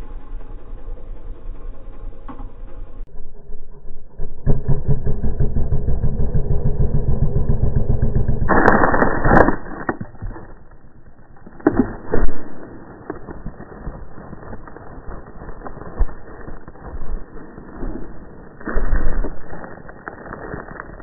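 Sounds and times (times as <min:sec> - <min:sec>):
motorcycle engine revving: 0:00.0 - 0:09.0.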